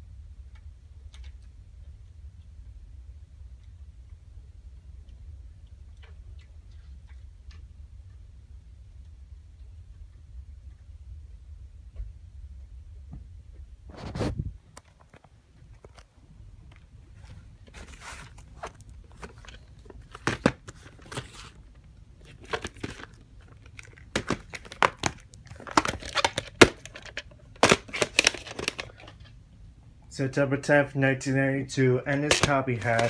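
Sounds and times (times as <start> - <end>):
plastic case clicks and snaps: 23.9 - 29.1, 32.1 - 33.0.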